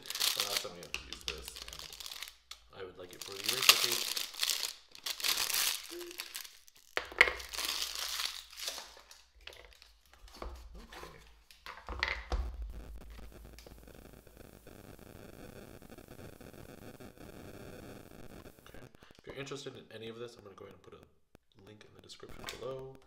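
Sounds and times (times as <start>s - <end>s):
plastic wrapper crinkling: 0.0s - 10.4s.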